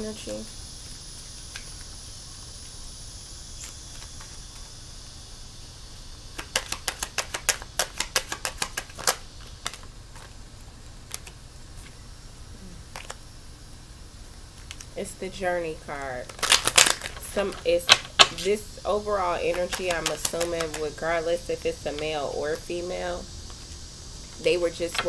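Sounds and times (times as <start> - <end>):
low steady hum: 0.0 - 25.0
cards being shuffled: 6.4 - 10.4, 16.2 - 18.5, 19.4 - 20.9.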